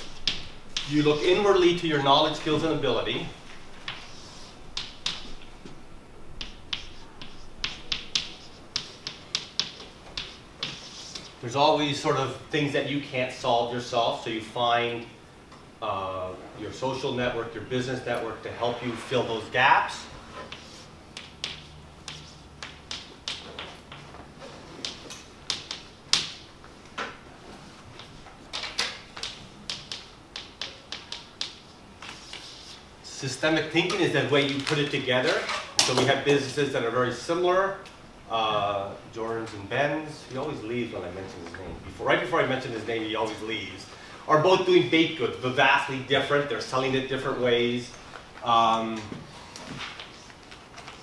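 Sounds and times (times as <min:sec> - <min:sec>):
chalk tapping and scraping on chalkboard: 0:00.0 - 0:05.8, 0:06.4 - 0:11.4, 0:19.9 - 0:26.4, 0:27.9 - 0:32.8.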